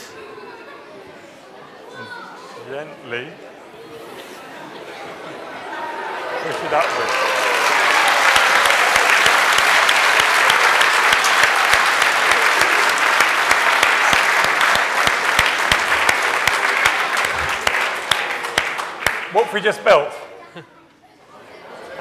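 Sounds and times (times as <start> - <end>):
large audience applauding: 5.8 - 20.1.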